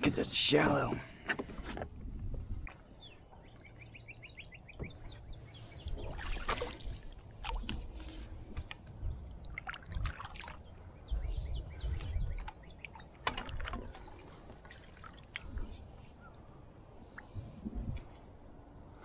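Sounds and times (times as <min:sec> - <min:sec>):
bird chirping: 0:02.8 - 0:06.5, 0:10.6 - 0:13.2
kayak paddle splashing: 0:05.6 - 0:11.3, 0:12.2 - 0:16.2.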